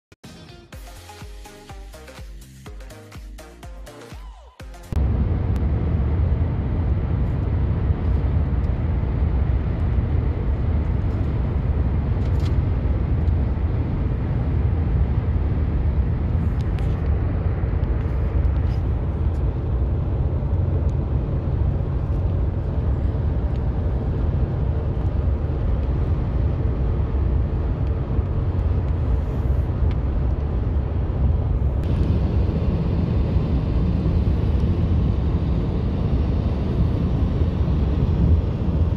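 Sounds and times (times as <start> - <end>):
road and engine rumble in car: 5.0 - 38.9.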